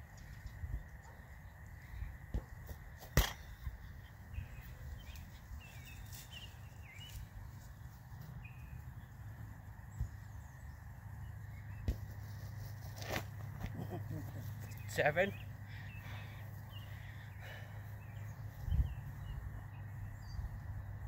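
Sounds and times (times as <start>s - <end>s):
ball kicked thud: 2.3s - 3.6s.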